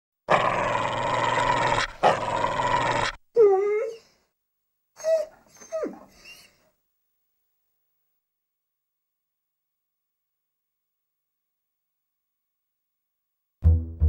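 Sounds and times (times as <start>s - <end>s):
cartoon dog growling: 0.3s - 3.2s
dog yelping and whimpering: 3.4s - 4.2s, 5.0s - 6.6s.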